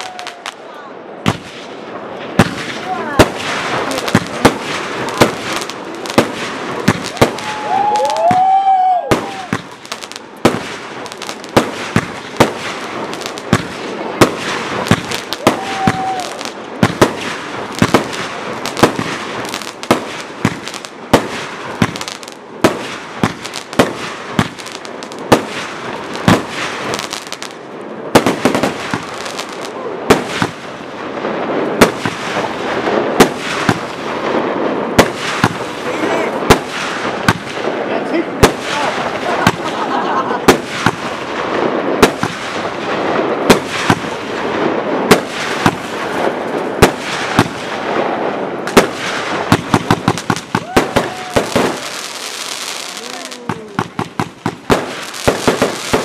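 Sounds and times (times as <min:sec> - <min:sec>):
fireworks bursting: 0:00.0 - 0:56.0
firework whistle: 0:06.9 - 0:09.7, 0:15.3 - 0:16.5.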